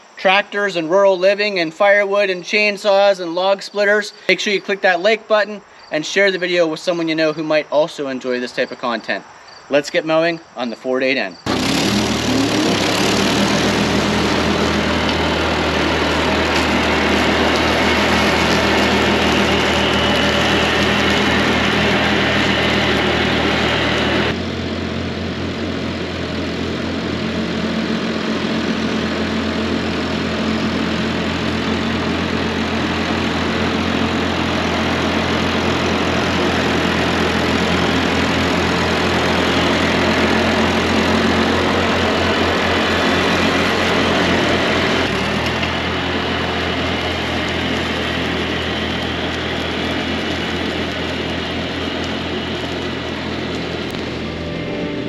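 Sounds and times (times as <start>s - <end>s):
tractor engine running: 11.5s - 55.0s.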